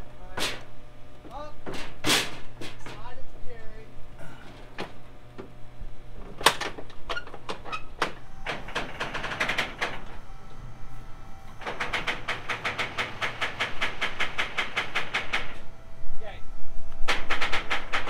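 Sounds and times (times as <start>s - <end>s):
low hum of machinery: 0.0s - 18.0s
metal knocks and clanks: 11.6s - 15.6s, 17.0s - 18.0s.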